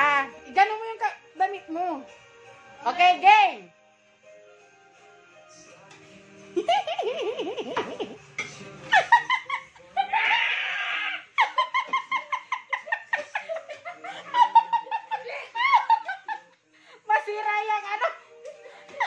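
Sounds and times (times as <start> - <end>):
high-pitched laughing: 8.9 - 16.4.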